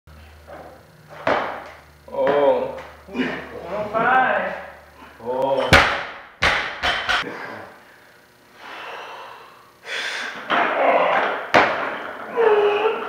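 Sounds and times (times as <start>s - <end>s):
barbell bouncing on rubber floor: 1.2s - 2.9s, 5.6s - 7.2s
man grunting: 2.5s - 3.6s
barbell thud: 5.6s - 7.2s, 10.5s - 12.2s
man breathing heavily: 7.2s - 10.4s.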